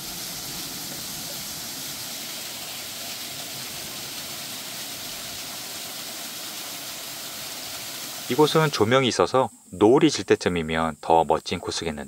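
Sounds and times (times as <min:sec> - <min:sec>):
water pouring off a water wheel: 0:00.0 - 0:08.8.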